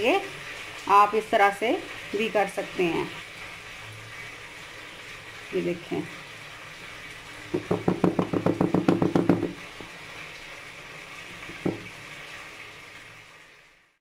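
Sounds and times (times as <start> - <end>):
metal pan knocking on counter: 7.6 - 9.6, 11.6 - 11.9.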